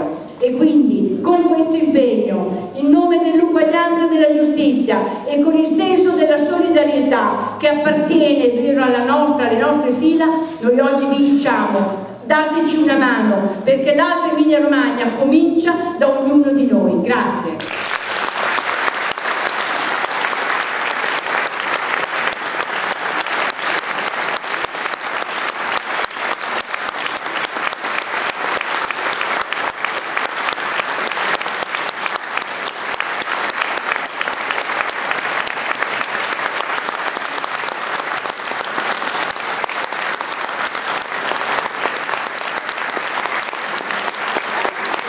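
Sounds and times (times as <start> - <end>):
audience applause: 17.6 - 45.0.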